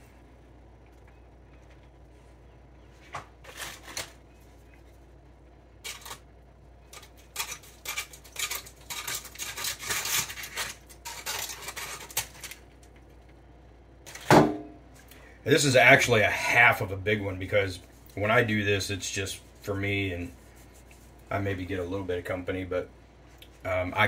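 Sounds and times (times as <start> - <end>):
foil crinkling: 3.4 - 4.2, 5.8 - 6.3, 6.9 - 13.0
knife scraping metal: 6.9 - 12.4.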